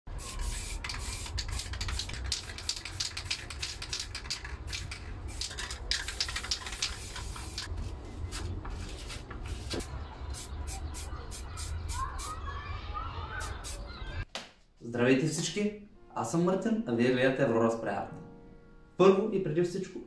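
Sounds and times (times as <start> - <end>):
spray paint cans hissing: 0.1 - 7.8, 9.4 - 12.4, 13.4 - 13.9.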